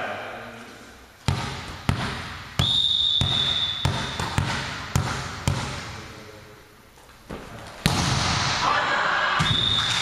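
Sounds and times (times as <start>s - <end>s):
volleyball bouncing on gym floor: 1.2s - 6.2s, 7.3s - 8.6s, 9.4s - 10.0s
referee's whistle blast: 2.6s - 4.2s, 9.4s - 10.0s.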